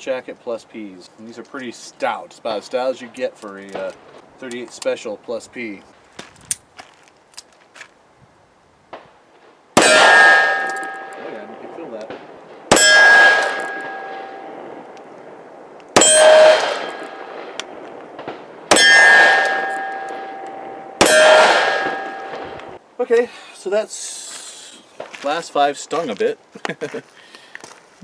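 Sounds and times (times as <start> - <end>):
steel target ringing: 9.8 - 11.6, 12.7 - 14.7, 16.0 - 17.6, 18.7 - 22.8
revolver gunshots: 9.8 - 14.8, 15.9 - 22.8.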